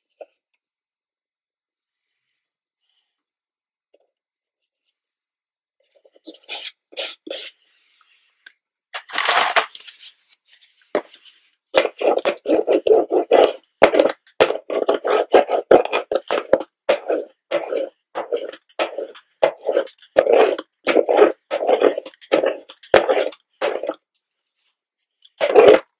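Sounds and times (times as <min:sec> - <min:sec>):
hand rubbing fabric: 0:10.9 - 0:24.0
hand roller rolling over fabric: 0:11.8 - 0:24.0, 0:25.4 - 0:25.9.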